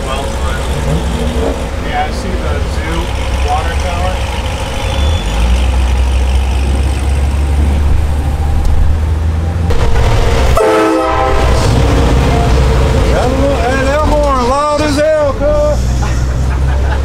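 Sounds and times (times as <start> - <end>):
truck engine rumbling: 0.0 - 17.0
air horn chord: 9.7 - 11.8.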